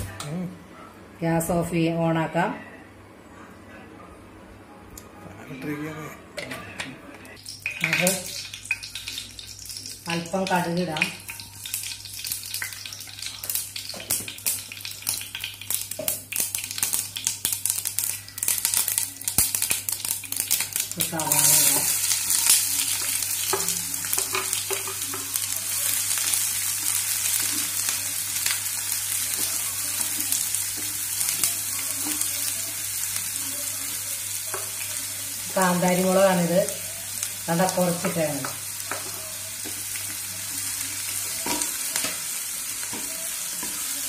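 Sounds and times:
onions sizzling in oil: 7.4 - 44.0
seeds crackling in hot oil: 7.4 - 44.0.

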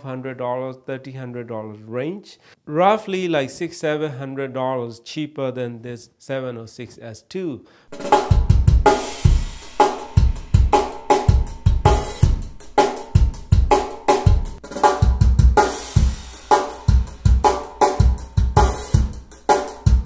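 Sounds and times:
drum kit through loudspeakers: 7.9 - 20.0.

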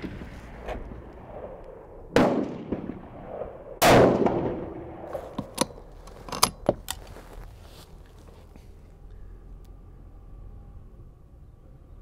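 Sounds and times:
echoing gunshots: 0.5 - 5.3
rifle bolt metallic clicks: 5.2 - 7.0.

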